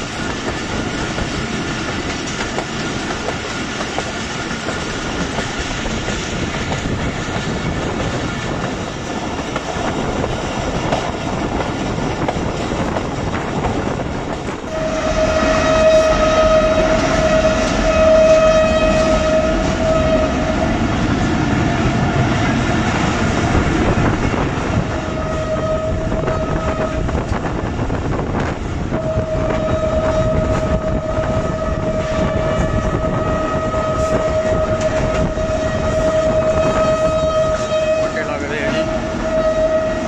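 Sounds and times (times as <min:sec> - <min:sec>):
train coaches rumbling on track: 0:00.0 - 0:40.0
diesel locomotive horn blasts: 0:14.6 - 0:22.6, 0:24.0 - 0:27.4, 0:28.8 - 0:40.0.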